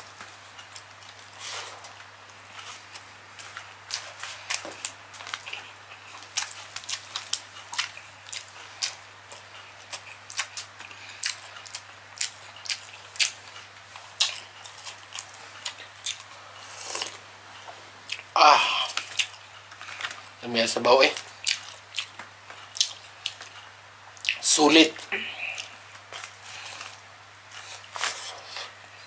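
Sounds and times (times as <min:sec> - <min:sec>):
wet lip smacks and chewing: 0:21.2 - 0:23.6.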